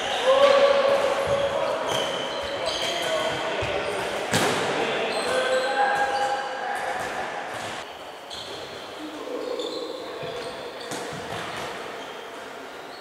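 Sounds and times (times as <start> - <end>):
players' voices: 0.0 - 8.2
sneakers squeaking: 0.0 - 13.0.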